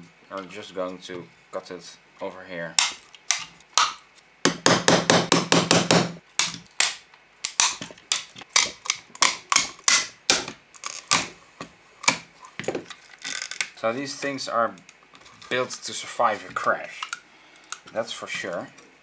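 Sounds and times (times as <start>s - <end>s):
side cutters snapping plastic: 6.4s - 11.3s.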